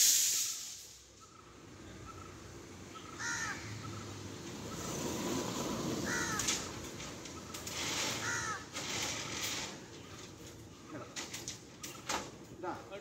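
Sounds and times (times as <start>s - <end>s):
crow cawing: 3.1s - 3.7s, 6.0s - 6.7s, 8.2s - 8.7s
steel bars scraping and rattling: 6.3s - 12.5s.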